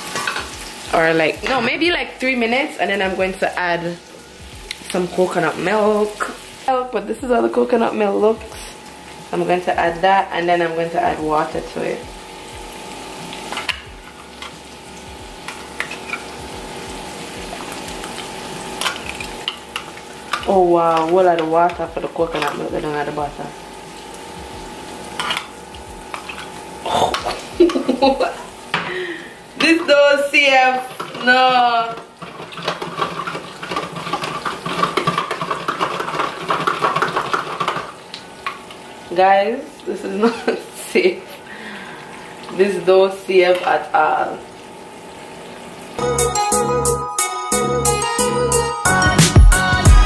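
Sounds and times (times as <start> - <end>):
vegetables sizzling in a pan: 0.0 - 46.1
steady hum: 0.2 - 31.8.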